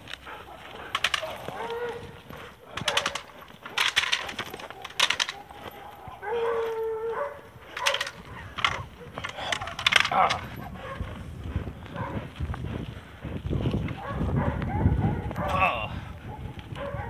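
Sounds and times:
dog scuffling with bite sleeve: 0:00.0 - 0:12.4.

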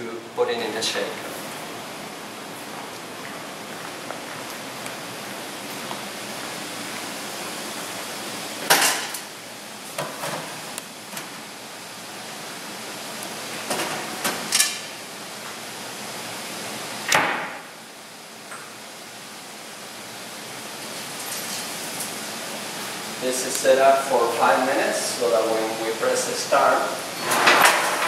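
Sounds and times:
steady hiss: 0:00.0 - 0:28.0.

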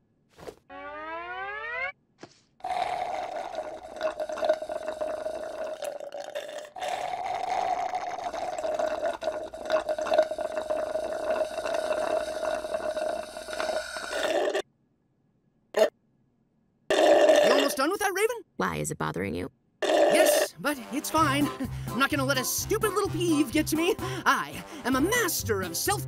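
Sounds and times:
drink slurped through a straw: 0:02.6 - 0:14.6, 0:16.9 - 0:17.8.

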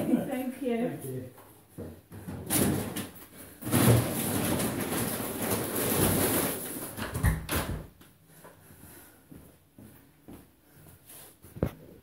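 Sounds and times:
plastic bags rustling: 0:02.5 - 0:07.2.

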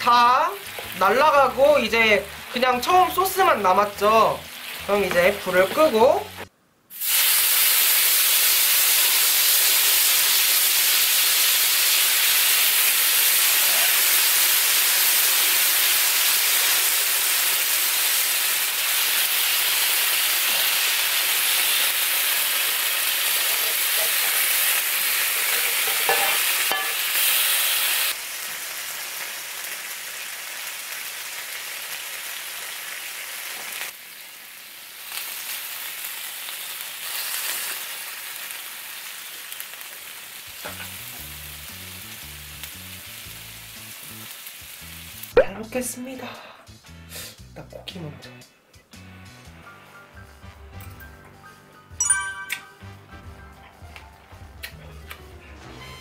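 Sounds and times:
steak sizzling on hot plate: 0:06.9 - 0:45.4.

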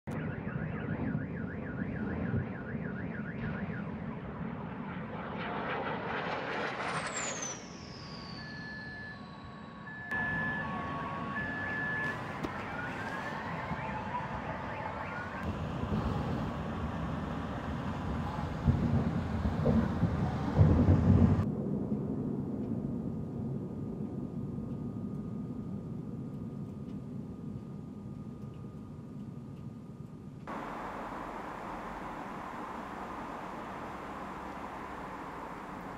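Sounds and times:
car alarms: 0:00.1 - 0:04.1, 0:08.2 - 0:20.8, 0:30.5 - 0:35.9
high whistle gliding downward: 0:06.2 - 0:20.8, 0:30.5 - 0:35.9
low rumble: 0:30.5 - 0:35.9.

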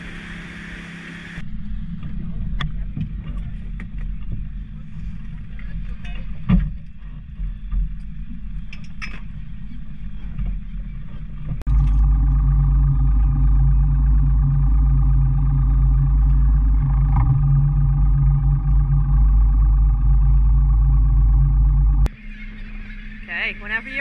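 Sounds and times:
outboard motor running: 0:11.4 - 0:24.0.

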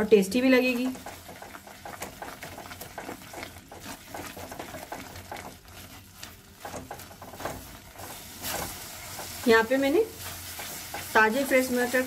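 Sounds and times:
spatula scraping a pan: 0:00.7 - 0:12.0.

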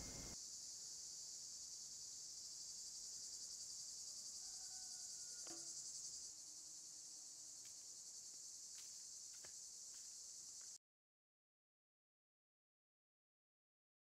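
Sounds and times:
insects shrilling: 0:00.0 - 0:00.4.

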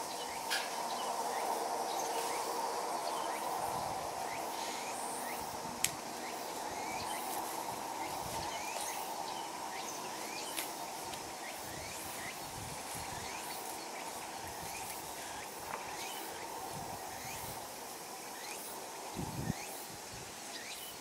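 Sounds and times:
insect drone: 0:00.0 - 0:21.0.

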